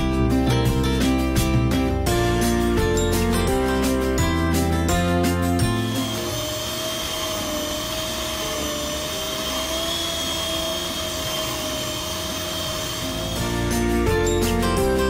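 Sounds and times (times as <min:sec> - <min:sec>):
electric hand mixer whining: 0:03.8 - 0:15.0.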